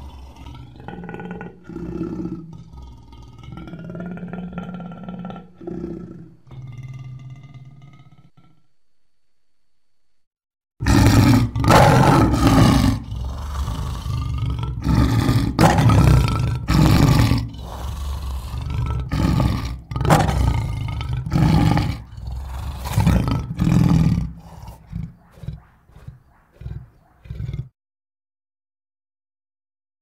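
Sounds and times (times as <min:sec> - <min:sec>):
lion grunts: 0:00.0 - 0:08.6, 0:10.8 - 0:27.7
lion roaring: 0:00.0 - 0:08.6, 0:10.8 - 0:27.7.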